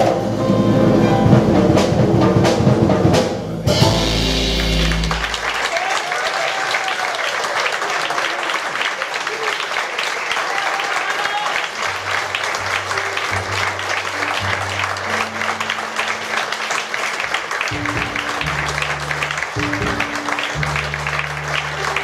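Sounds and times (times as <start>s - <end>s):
low bass notes: 0.0s - 5.6s, 17.8s - 22.0s
audience applauding: 4.4s - 22.0s.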